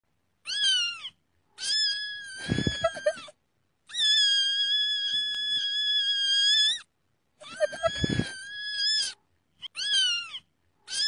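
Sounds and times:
cat meowing and crying: 0.4s - 11.0s.

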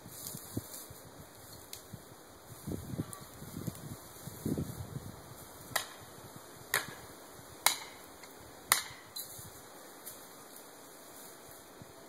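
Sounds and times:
sharp hammer strikes: 7.6s - 8.0s, 8.7s - 9.1s.

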